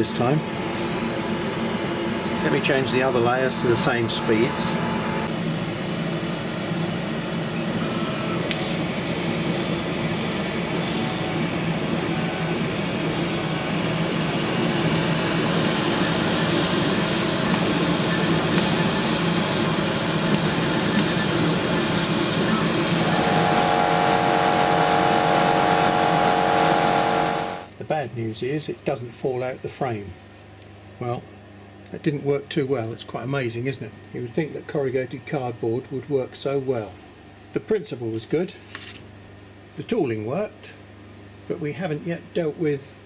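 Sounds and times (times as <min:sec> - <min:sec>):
low fan hum: 0:00.0 - 0:07.4, 0:08.6 - 0:30.2
laser cutter whooshing: 0:07.5 - 0:27.7
steady pitched tone: 0:11.3 - 0:27.7.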